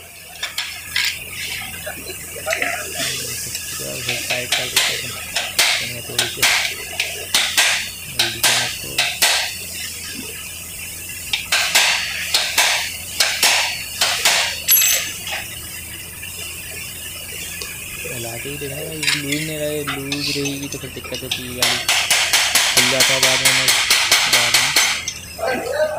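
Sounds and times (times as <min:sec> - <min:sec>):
hammer striking steel punch: 0:07.4 - 0:09.5, 0:11.5 - 0:15.1.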